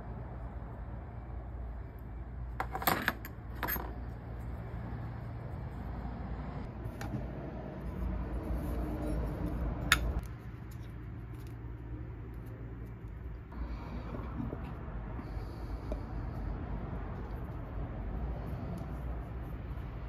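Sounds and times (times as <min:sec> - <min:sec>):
low steady rumble: 0:00.0 - 0:20.0
metal parts clinking: 0:02.6 - 0:04.1.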